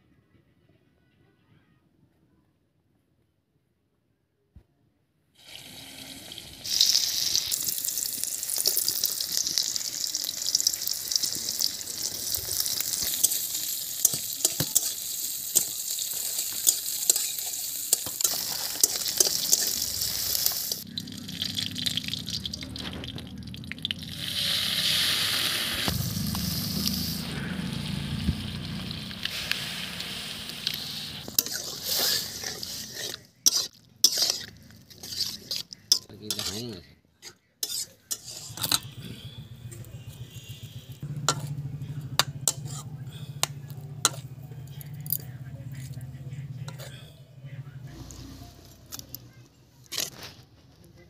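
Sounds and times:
bubbling rush of frying mixture: 5.4 - 36.8, 37.6 - 44.6
hot oil sizzling: 5.4 - 36.8, 37.6 - 38.8, 40.4 - 45.2.

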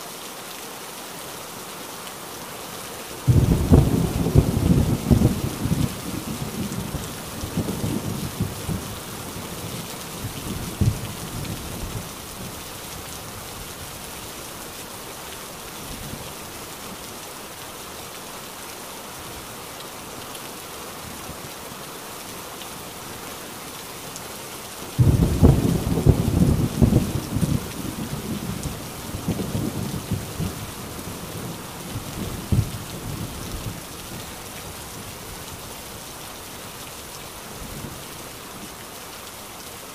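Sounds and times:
heavy rain: 0.0 - 39.9
loud peal of thunder: 3.3 - 5.9, 25.0 - 28.6
thunder rumbling: 3.3 - 12.0, 25.0 - 33.8.

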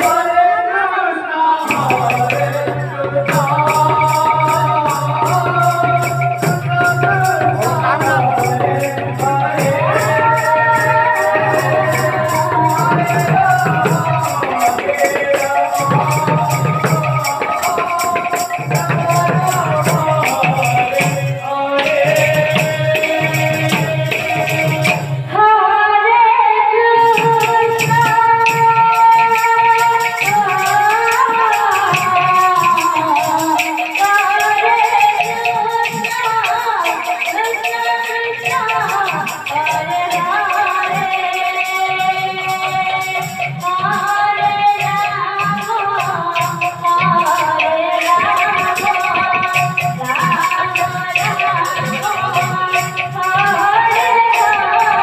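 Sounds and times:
jingling percussion: 0.0 - 0.6, 1.6 - 25.4, 27.0 - 55.0
voices singing devotional melody: 0.0 - 55.0
barrel drum beat: 1.7 - 25.2.

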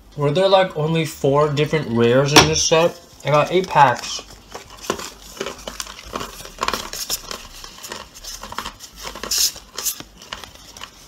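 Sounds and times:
cards sliding and flicking: 4.8 - 11.0.

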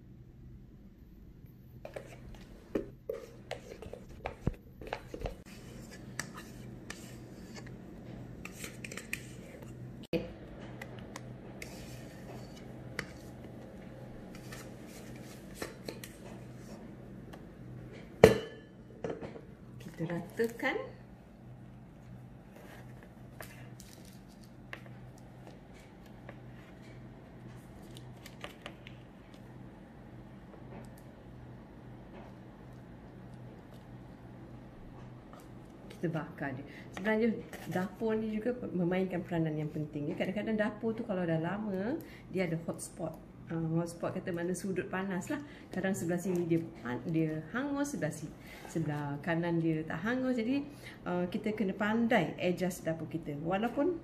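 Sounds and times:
utensil scraping steel bowl: 1.8 - 2.5, 3.1 - 9.8, 11.6 - 13.5.

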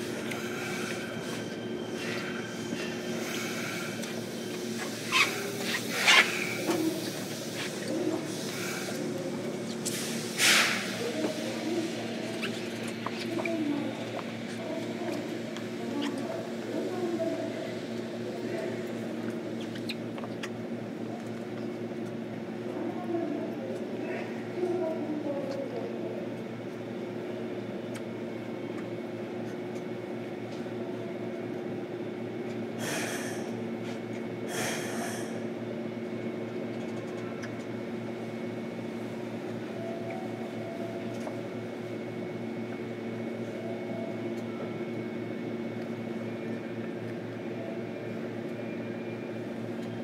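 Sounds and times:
electric train car hum: 0.0 - 50.0
short hisses: 9.9 - 11.0.

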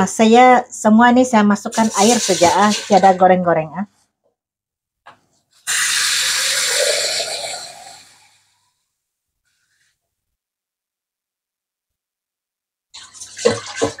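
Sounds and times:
water poured into metal pot: 1.7 - 3.2, 13.0 - 14.0.

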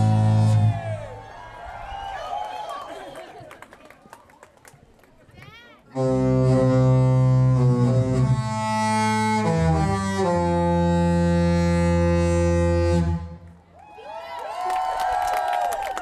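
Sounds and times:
ship horn playing melody: 0.0 - 0.9, 6.0 - 13.6
people cheering and whooping: 0.0 - 4.4, 13.7 - 16.0.

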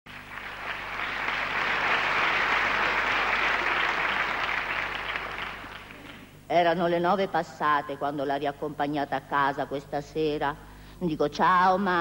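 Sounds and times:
audience applauding: 0.1 - 6.4.

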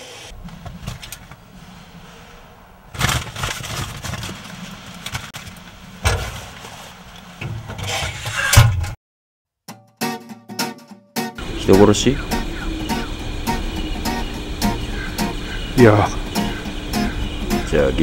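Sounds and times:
low steady rumble: 0.3 - 7.4, 11.4 - 18.0
paper bag rustling: 0.3 - 7.4.

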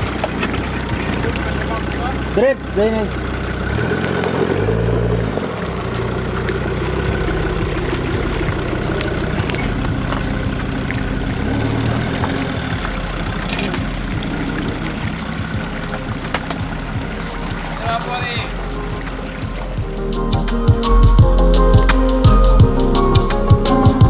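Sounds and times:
suv engine running and revving: 0.0 - 24.0.

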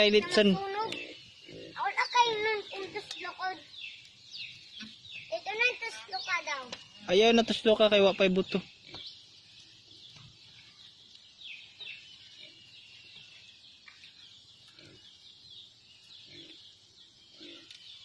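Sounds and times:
chickens clucking: 0.0 - 9.2
faint birds chirping: 0.0 - 18.0.

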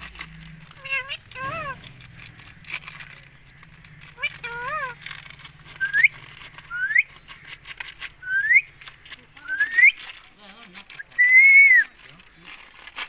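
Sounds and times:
parakeet whistling: 5.8 - 7.1, 8.2 - 8.8, 9.4 - 10.0.

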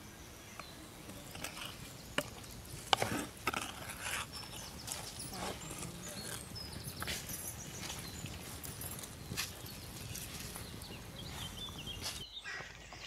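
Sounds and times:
wooden spatula scraping pot: 1.2 - 8.2.

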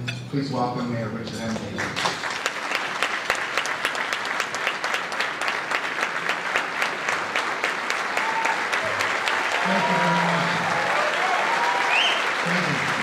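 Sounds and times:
crowd applauding: 1.8 - 13.0.

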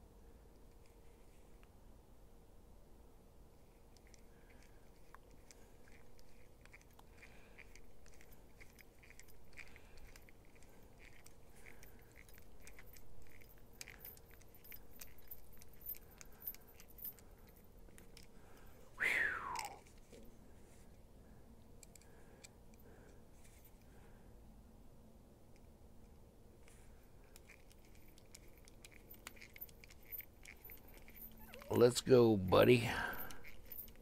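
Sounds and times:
screwdriver clicking and scraping: 3.9 - 18.4, 21.8 - 22.6, 27.3 - 31.8, 33.2 - 34.0.

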